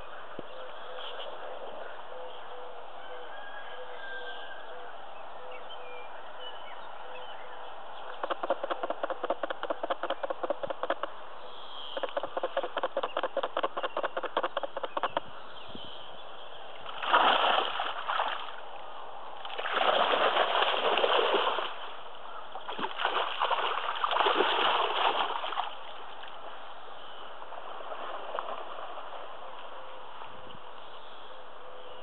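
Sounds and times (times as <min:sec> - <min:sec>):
fish thrashing and splashing: 0:08.1 - 0:11.1, 0:12.0 - 0:15.2, 0:16.9 - 0:18.6, 0:19.4 - 0:21.9, 0:22.7 - 0:25.9.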